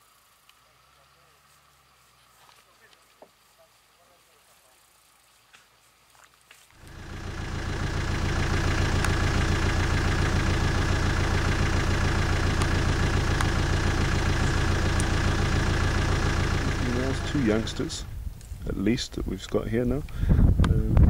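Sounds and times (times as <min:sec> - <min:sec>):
vehicle engine idling: 0:06.8 - 0:20.4.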